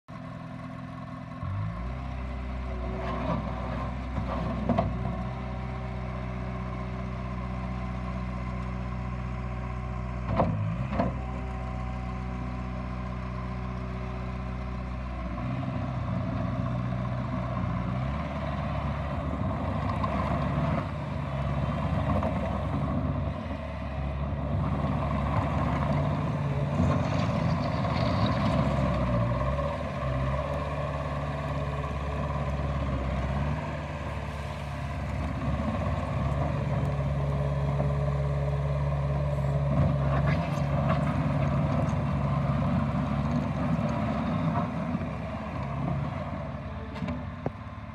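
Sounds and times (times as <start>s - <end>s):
diesel engine idling: 0.1s - 47.9s
engine running under load: 0.1s - 47.9s.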